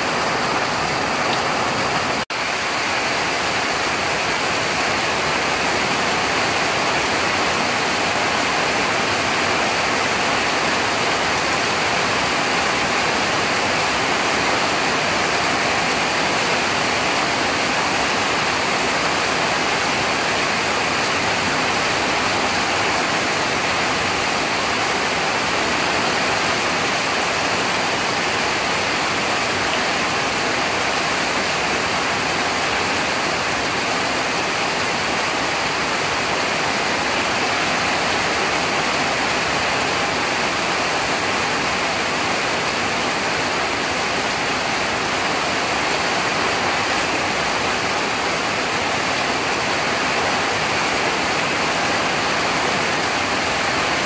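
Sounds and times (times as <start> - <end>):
heavy rain on roofs: 0.0 - 54.0.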